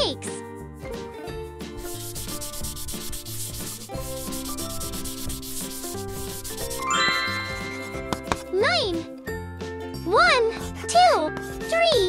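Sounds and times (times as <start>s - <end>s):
background music: 0.0s - 12.0s
eraser scrubbing chalkboard: 1.8s - 9.1s, 10.5s - 12.0s.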